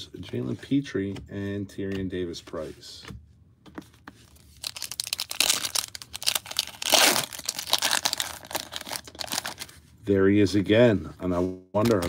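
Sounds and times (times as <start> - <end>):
plastic wrapper crinkling: 4.3 - 9.8.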